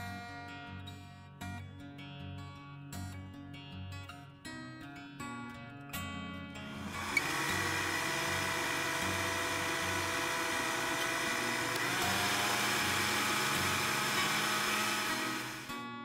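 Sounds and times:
blender motor whirring: 0:06.7 - 0:15.8.

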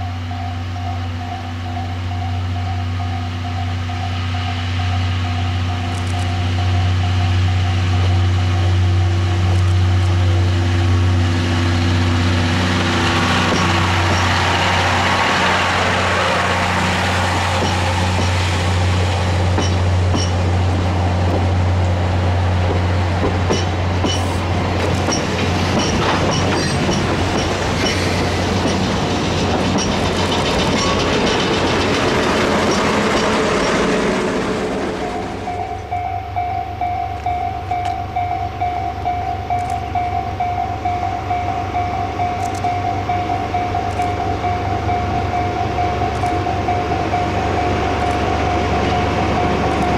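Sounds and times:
diesel locomotive engine drone: 0:00.0 - 0:49.9
train wheels rumbling on rail: 0:00.0 - 0:49.9
level crossing warning bell: 0:35.0 - 0:49.9.

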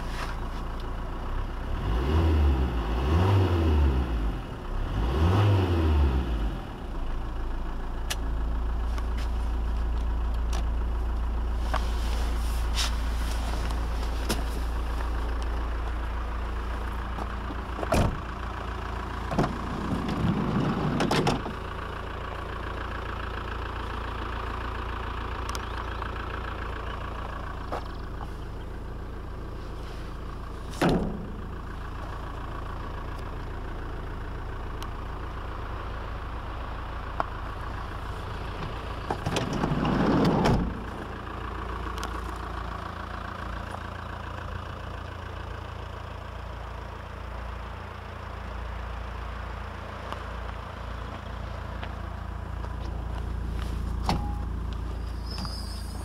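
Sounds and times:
diesel engine idling: 0:00.0 - 0:56.0
door thump: 0:17.9 - 0:18.2.

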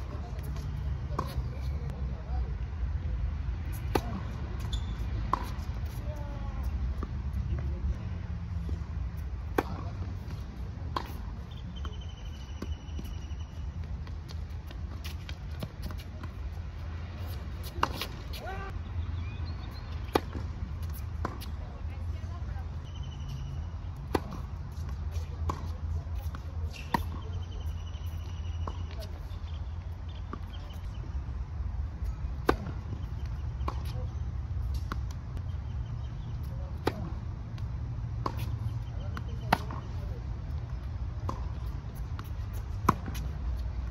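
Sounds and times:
racket hitting tennis ball: 0:03.7 - 0:07.2, 0:09.4 - 0:12.0, 0:17.2 - 0:18.8, 0:20.0 - 0:21.6, 0:24.0 - 0:27.3, 0:32.4 - 0:33.0, 0:36.7 - 0:40.1, 0:41.2 - 0:43.9.

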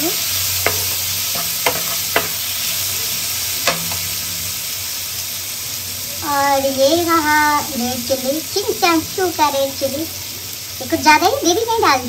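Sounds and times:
vegetables sizzling in oil: 0:00.0 - 0:12.0
utensil clicking against pan: 0:00.6 - 0:02.4, 0:03.6 - 0:04.1.

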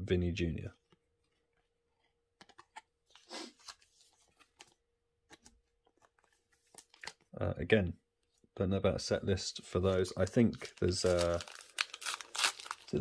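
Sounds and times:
plastic sleeve rustle: 0:10.2 - 0:13.0.

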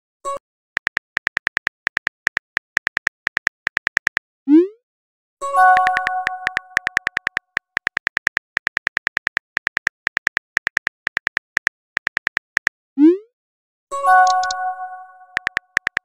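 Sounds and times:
phone keyboard typing clicks: 0:00.8 - 0:04.2, 0:05.7 - 0:12.8, 0:14.2 - 0:14.6, 0:15.3 - 0:16.0
message chime: 0:05.5 - 0:07.1.

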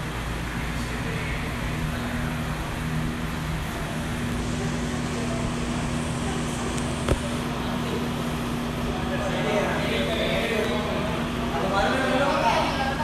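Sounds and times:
ventilation fan humming: 0:00.0 - 0:13.0.

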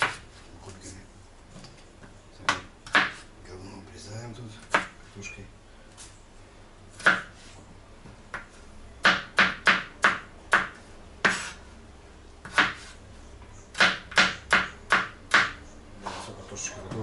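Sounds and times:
knife chopping on cutting board: 0:00.0 - 0:00.2, 0:02.4 - 0:03.2, 0:04.6 - 0:04.9, 0:07.0 - 0:07.3, 0:08.3 - 0:11.6, 0:12.4 - 0:12.9, 0:13.7 - 0:15.6.

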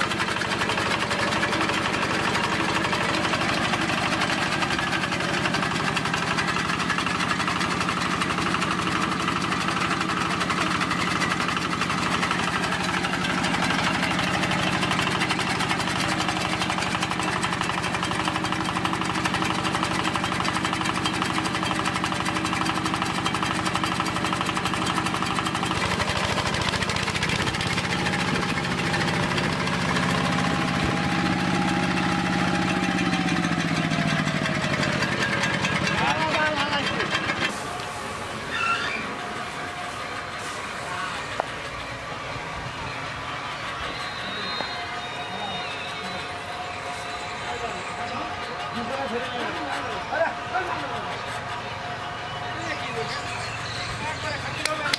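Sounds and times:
diesel engine running: 0:00.0 - 0:54.9.

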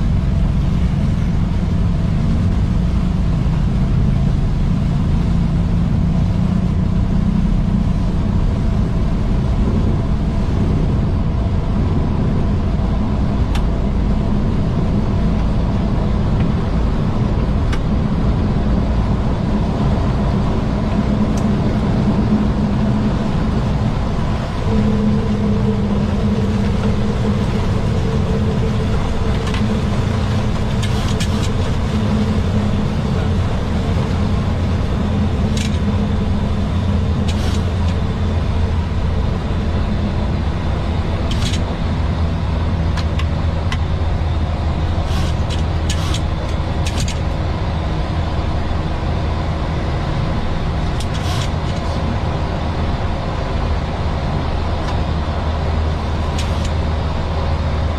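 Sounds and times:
engine and airflow rush: 0:00.0 - 0:57.9
low hum: 0:00.0 - 0:57.9
steady tone: 0:08.1 - 0:51.0.

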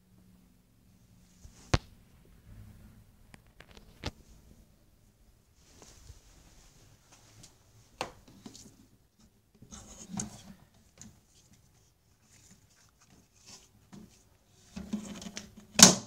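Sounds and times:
rubbing and rustling on camera: 0:05.6 - 0:15.6.

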